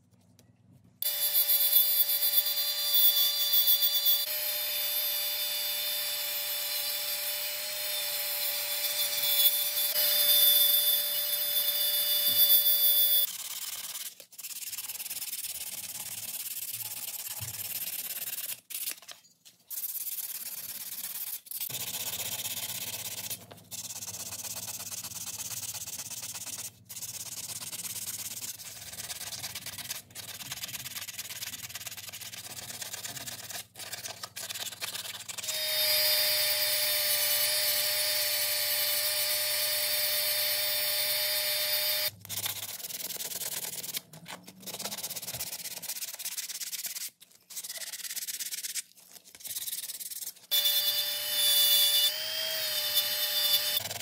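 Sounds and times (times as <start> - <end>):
rotary tool grinding metal: 1.0 - 14.2, 35.4 - 42.5, 50.5 - 54.0
sandpaper scraping metal: 8.6 - 54.0.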